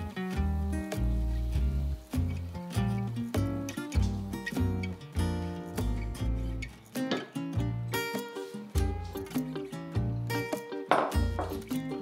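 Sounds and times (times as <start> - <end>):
acoustic guitar with heavy bass: 0.0 - 12.0.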